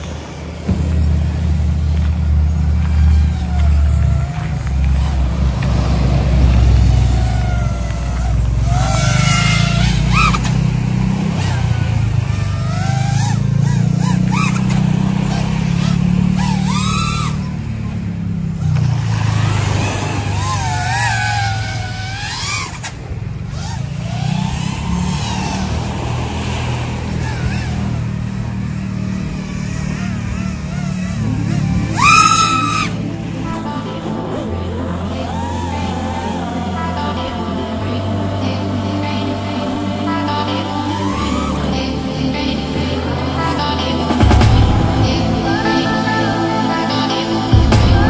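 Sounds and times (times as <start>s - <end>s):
steady low rumble: 0.0s - 12.6s, 32.9s - 48.0s
quadcopter motors whining: 0.0s - 48.0s.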